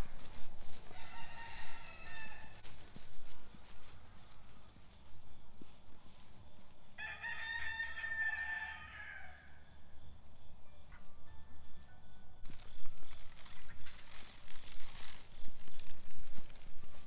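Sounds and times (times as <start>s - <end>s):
rooster crowing: 0.8s - 2.7s, 7.0s - 9.7s.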